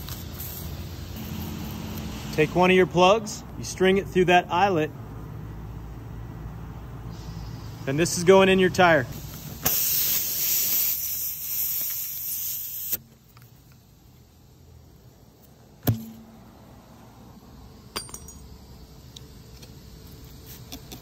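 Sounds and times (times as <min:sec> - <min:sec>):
air hissing out of tire: 0:00.0 - 0:02.6, 0:07.0 - 0:08.3, 0:09.0 - 0:13.1.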